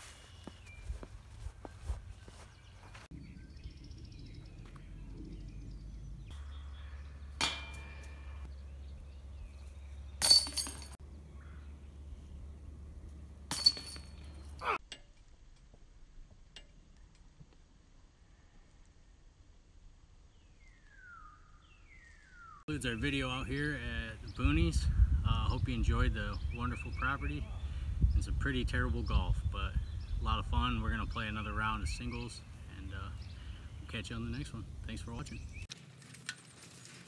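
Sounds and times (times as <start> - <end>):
disc hitting metal chains: 7.4 - 8.4, 10.2 - 11.0, 13.5 - 14.6
light metallic clinks: 10.2 - 11.0
wind on microphone: 24.1 - 32.1.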